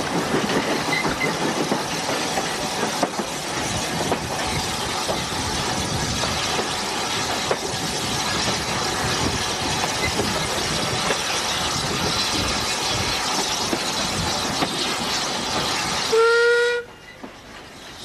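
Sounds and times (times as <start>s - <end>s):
steam locomotive clattering: 0.0s - 18.0s
steam whistle: 16.1s - 16.9s.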